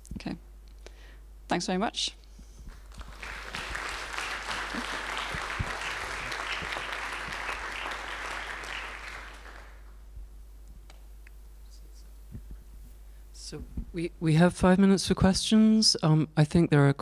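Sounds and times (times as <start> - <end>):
audience applauding: 2.7 - 10.0.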